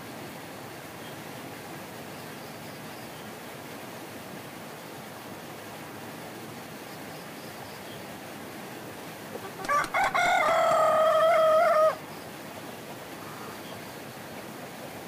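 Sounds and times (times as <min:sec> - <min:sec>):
background hiss: 0:00.0 - 0:15.0
rooster crowing: 0:09.4 - 0:12.0.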